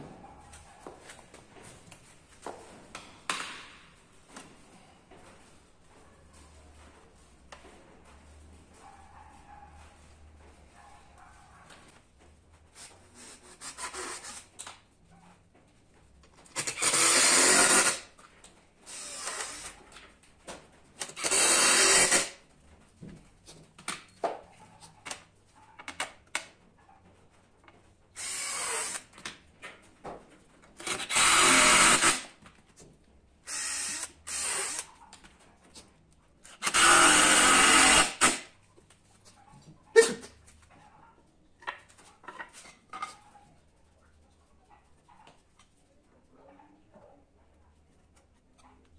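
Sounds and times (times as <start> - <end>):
power drill bursts: 16.6 - 18.0, 18.9 - 19.7, 21.2 - 22.3, 28.2 - 29.0, 30.8 - 32.3, 33.5 - 34.9, 36.6 - 38.4.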